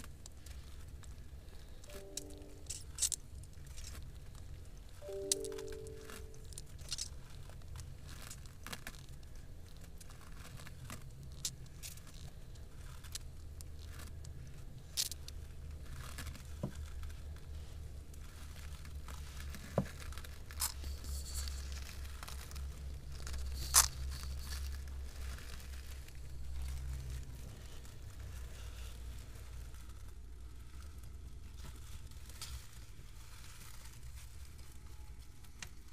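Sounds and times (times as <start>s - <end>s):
low steady rumble: 0.0s - 35.9s
lizards scraping and rustling: 6.5s - 35.0s.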